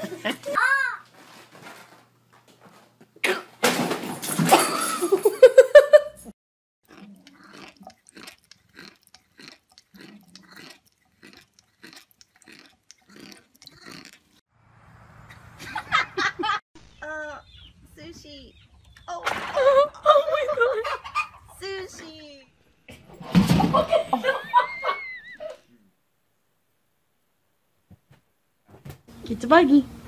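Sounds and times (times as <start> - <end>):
cat chewing: 6.9 - 14.4.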